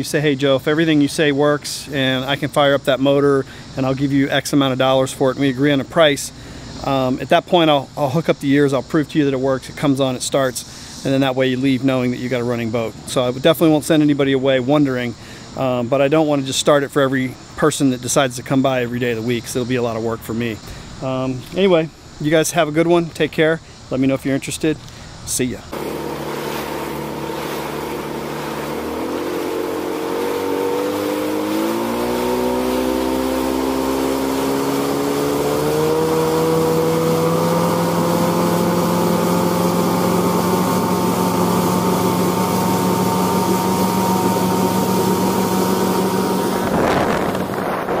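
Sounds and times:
outboard motor running: 25.7s - 48.0s
water rushing past: 25.7s - 48.0s
wind on microphone: 42.1s - 48.0s.

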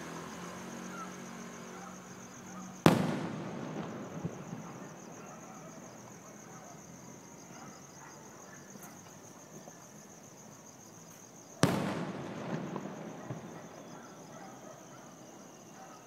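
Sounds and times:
small firework pops: 2.8s - 6.2s, 11.1s - 14.3s
firework boom: 2.9s - 5.0s, 11.6s - 13.7s.

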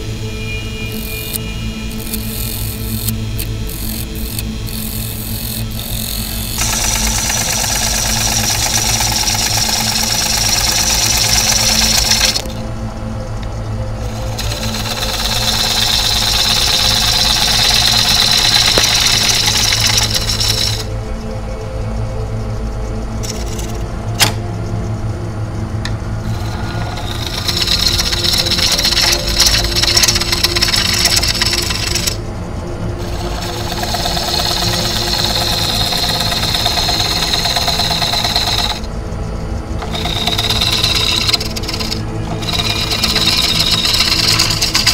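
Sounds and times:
lathe motor humming: 0.8s - 12.8s, 13.4s - 21.0s, 23.1s - 23.8s, 25.8s - 44.9s
tool scraping spinning wood: 2.0s - 12.6s, 14.0s - 20.9s, 23.2s - 23.8s, 26.2s - 32.2s, 33.0s - 38.9s, 39.8s - 44.9s
hiss of wood shavings: 26.3s - 32.2s.

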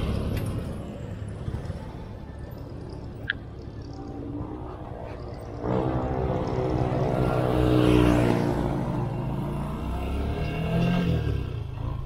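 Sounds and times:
motorcycle engine accelerating: 3.8s - 12.0s.

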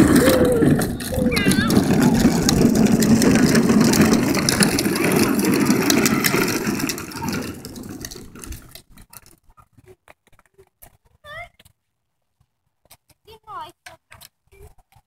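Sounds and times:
plastic wheels rattling on asphalt: 0.0s - 11.7s.

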